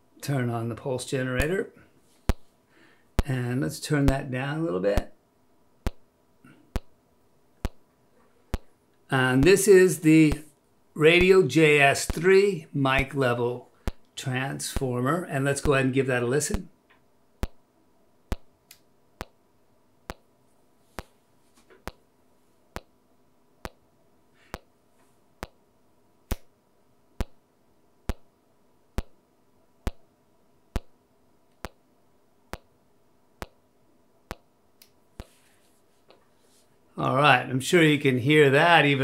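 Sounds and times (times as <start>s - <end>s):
sharp test clicks: 5.8s - 6.0s, 7.6s - 7.8s, 12.1s - 12.3s, 13.8s - 14.1s, 17.4s - 17.6s, 18.3s - 19.4s, 27.2s - 27.4s, 28.1s - 28.3s, 29.0s - 29.2s, 29.8s - 30.0s, 30.8s - 31.8s, 33.4s - 33.6s, 34.3s - 35.3s.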